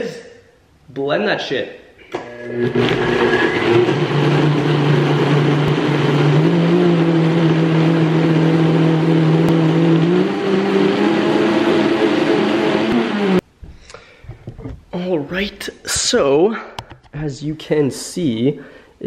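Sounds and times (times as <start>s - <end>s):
blender motor whine: 2.1s - 13.4s.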